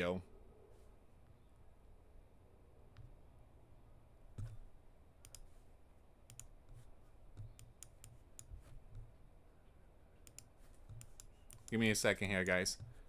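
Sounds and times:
light computer clicks: 0:05.2 - 0:05.5, 0:06.3 - 0:06.5, 0:10.2 - 0:12.0.

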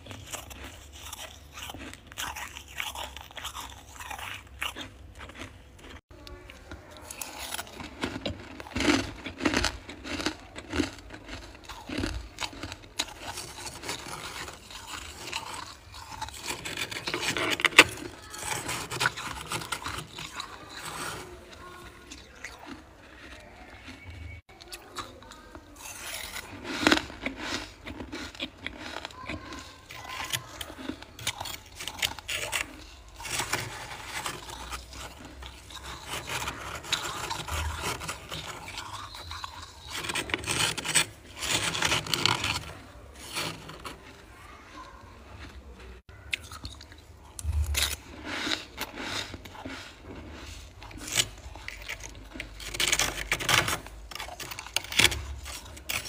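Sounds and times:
spoon scraping frost: 0:00.0 - 0:56.0.

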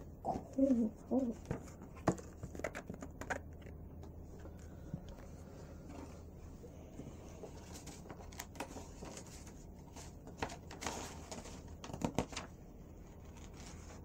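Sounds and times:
book pages turning: 0:07.2 - 0:14.0.

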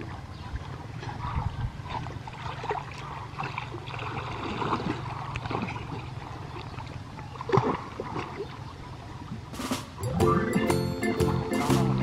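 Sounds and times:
water sloshing and splashing: 0:00.0 - 0:09.6.

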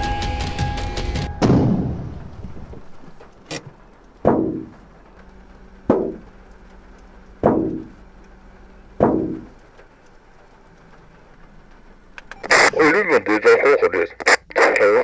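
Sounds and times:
heavy bangs on car roof: 0:04.2 - 0:04.8, 0:05.9 - 0:06.3, 0:07.4 - 0:08.0, 0:09.0 - 0:09.6.

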